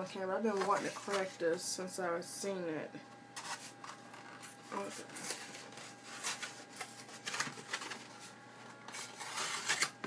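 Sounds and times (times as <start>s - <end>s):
cardboard box being torn open: 8.9s - 10.0s.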